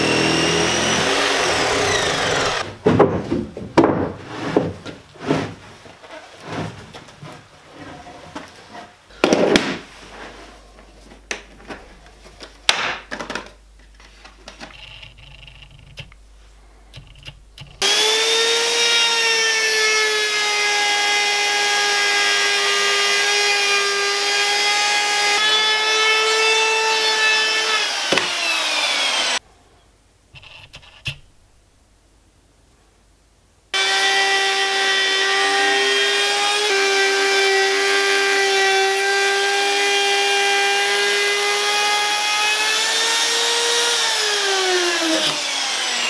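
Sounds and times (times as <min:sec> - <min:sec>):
router whining: 0:00.0 - 0:02.7, 0:17.7 - 0:29.4, 0:33.8 - 0:46.0
wooden knocks and thumps: 0:02.7 - 0:05.7.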